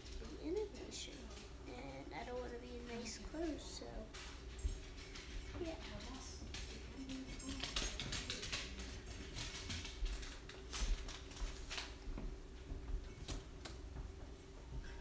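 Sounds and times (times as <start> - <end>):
faint room hum: 0.0 - 15.0
paintbrush scratching and tapping: 2.8 - 10.6.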